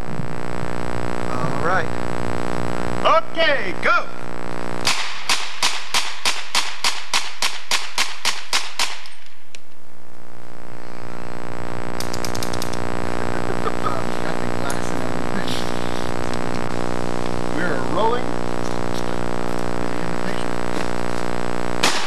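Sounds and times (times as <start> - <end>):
steady electrical hum: 0.0 - 22.0
rifle shots in rapid succession: 4.8 - 9.2, 21.8 - 22.0.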